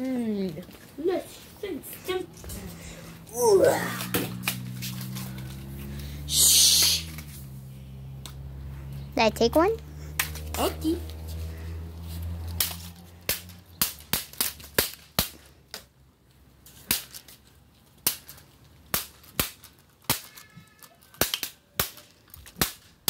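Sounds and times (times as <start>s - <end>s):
plastic toy swords striking: 12.6s - 15.9s, 16.8s - 17.3s, 18.0s - 20.6s, 21.2s - 22.9s.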